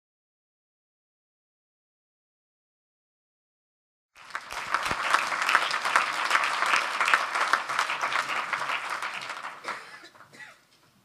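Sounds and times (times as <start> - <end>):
audience clapping: 4.2 - 10.3.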